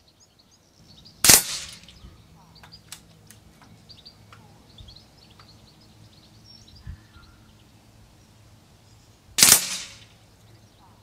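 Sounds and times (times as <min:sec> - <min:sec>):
birds chirping faintly: 0:00.0 - 0:11.0
silenced air rifle shot: 0:01.2 - 0:02.0, 0:09.4 - 0:10.2.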